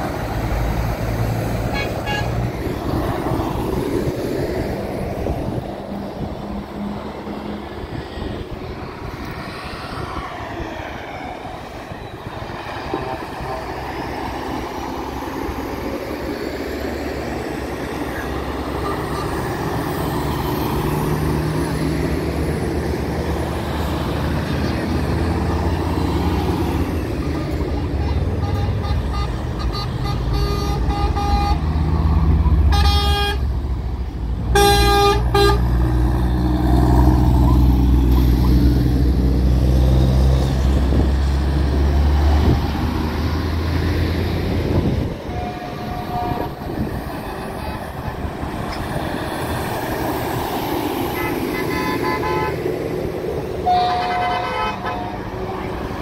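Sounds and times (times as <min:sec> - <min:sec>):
heavy trucks driving past: 0:00.0 - 0:56.0
truck air horn blasts: 0:01.7 - 0:02.4, 0:18.8 - 0:19.5, 0:28.4 - 0:31.7, 0:32.6 - 0:33.5, 0:34.5 - 0:35.8, 0:45.2 - 0:46.8, 0:51.1 - 0:52.6, 0:53.6 - 0:55.3.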